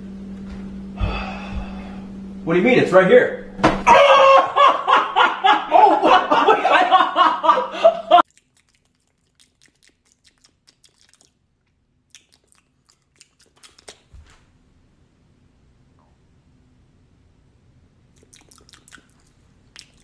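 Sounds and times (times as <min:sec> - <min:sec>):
person chewing cake loudly: 0:08.2 - 0:14.4, 0:18.0 - 0:20.0.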